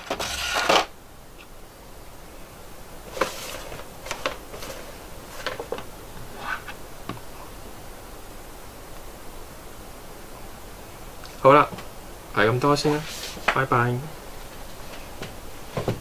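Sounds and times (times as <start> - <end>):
plastic tray rustling on table: 3.1 - 6.8.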